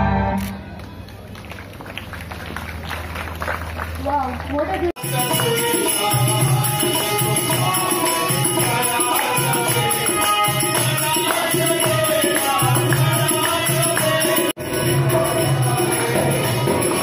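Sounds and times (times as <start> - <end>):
hand drum rhythm: 4.9 - 17.0
harmonium: 4.9 - 17.0
man singing: 5.0 - 17.0.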